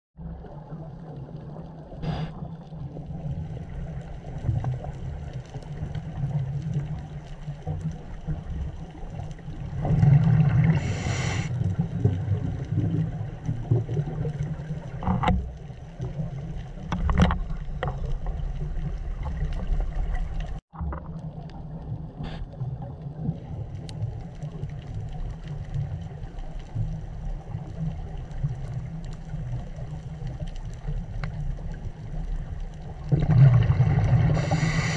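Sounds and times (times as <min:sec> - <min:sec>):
low underwater rumble: 0:00.2 - 0:34.9
diver's exhaled bubbles hissing: 0:01.8 - 0:03.9, 0:09.6 - 0:13.4, 0:33.1 - 0:34.9.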